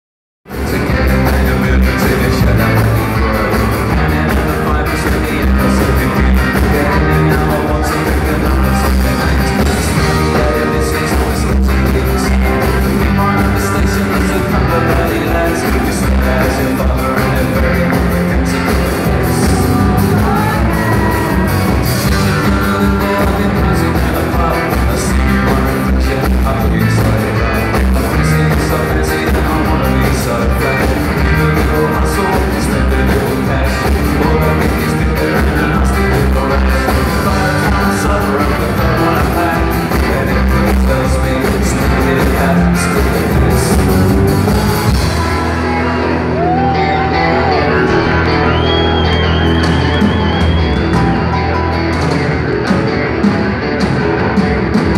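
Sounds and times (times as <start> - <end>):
live rock band playing: 0.5 - 54.9.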